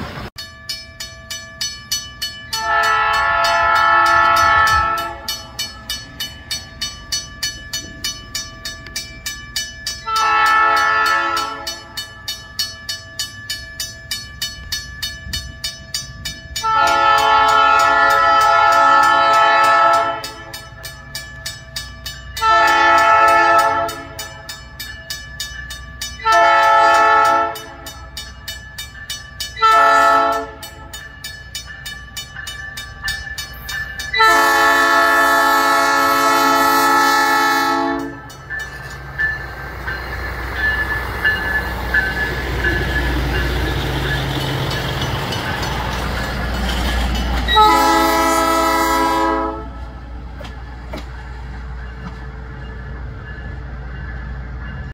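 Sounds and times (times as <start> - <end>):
crossing signal bell dinging: 0.4 - 54.9
train horn blasts: 2.6 - 5.4, 10.1 - 12.0, 16.6 - 20.5, 22.4 - 24.3, 26.2 - 28.0, 29.6 - 30.9, 34.1 - 38.3, 47.4 - 49.9.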